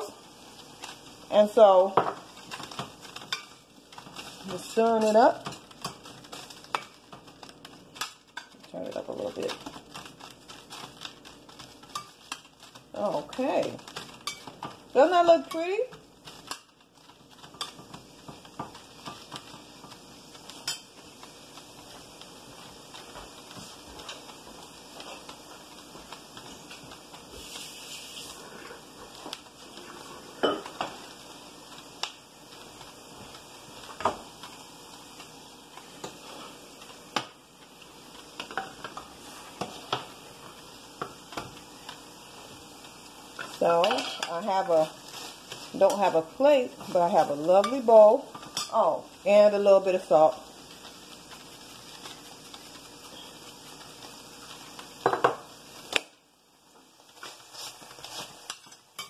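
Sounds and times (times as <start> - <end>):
greens sizzling in a pot: 0.0 - 59.0
low kitchen background noise: 0.0 - 59.0
dishes and fork clinking: 30.4 - 30.9
utensils knocking on pan: 55.0 - 55.4.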